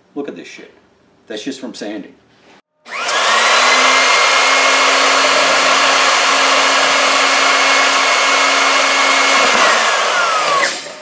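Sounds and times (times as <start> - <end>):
electric motor whining: 2.9 - 11.0.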